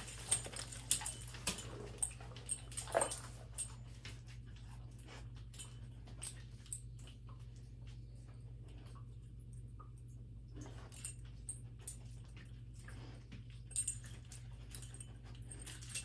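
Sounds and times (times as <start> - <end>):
dog claws clicking and tapping: 0.0 - 7.7.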